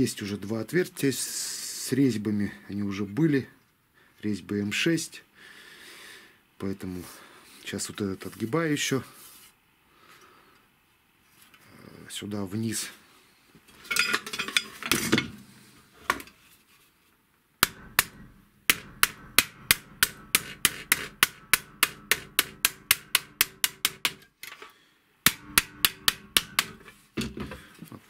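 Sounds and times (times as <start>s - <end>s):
handling of metal sheet: 13.8s - 16.3s
mallet knocking on sheet metal: 17.6s - 24.2s, 25.3s - 27.3s.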